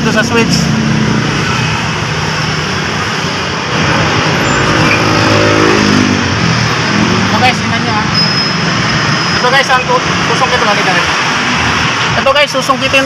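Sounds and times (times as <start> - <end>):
traffic hum: 0.0 - 13.0
vehicle passing by: 3.6 - 9.2.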